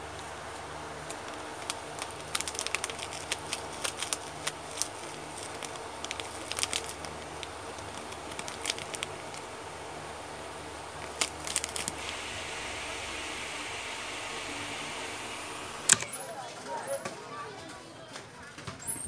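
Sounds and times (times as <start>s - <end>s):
steady low hum: 0.0s - 16.5s
crackles from iced drink: 0.1s - 9.9s, 10.9s - 16.2s
powder pouring from sachet: 1.1s - 9.5s, 11.0s - 16.1s.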